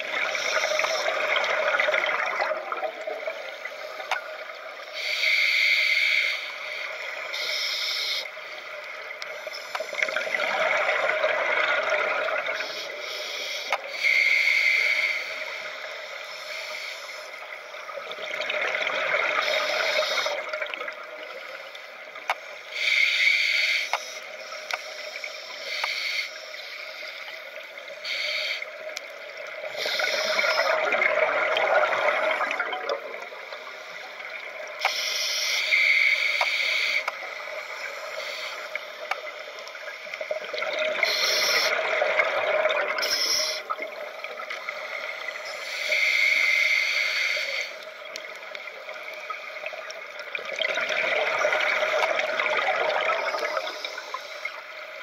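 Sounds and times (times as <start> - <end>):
faint clicks: 0.1 - 11.0, 12.5 - 31.0, 33.6 - 55.0
scuba regulator breathing hiss: 4.8 - 8.5, 12.6 - 17.9, 19.4 - 20.5, 22.5 - 30.9, 33.6 - 39.6, 41.0 - 42.0, 43.0 - 48.1, 53.2 - 54.9
rush of exhaled bubbles: 29.6 - 33.3, 50.2 - 54.1.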